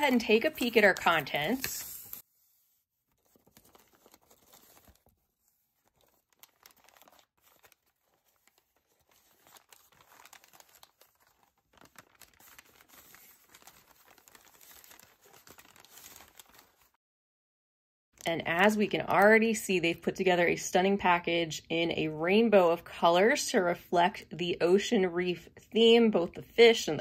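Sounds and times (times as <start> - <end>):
packing paper crinkling and tearing: 0.0 - 2.2, 3.1 - 17.0.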